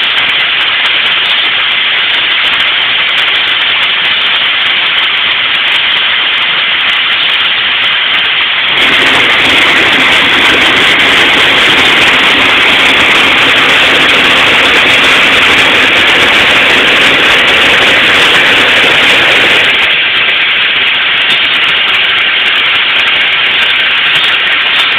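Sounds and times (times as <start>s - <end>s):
fire hoses spraying water: 0.0s - 24.9s
pump engine running: 0.0s - 24.9s.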